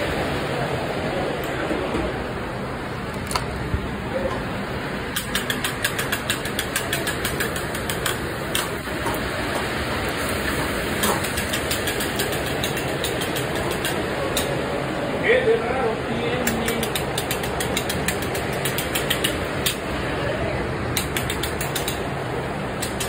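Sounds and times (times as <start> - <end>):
exhaust hood fan drone: 0.0 - 23.0
quick clicks and taps: 5.1 - 9.2, 11.0 - 14.5, 16.5 - 19.8, 21.0 - 22.0.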